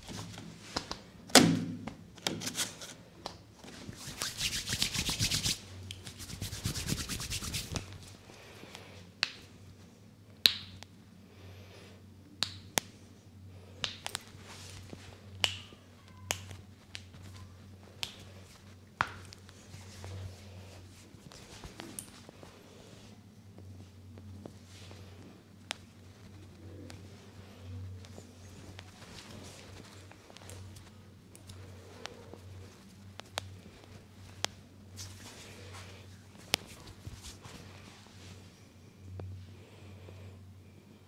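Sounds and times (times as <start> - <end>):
knuckles cracking: 0.3 - 1.0, 9.2 - 9.5, 13.8 - 20.2
hands rubbing skin: 2.5 - 8.2, 16.3 - 23.0, 24.4 - 38.4.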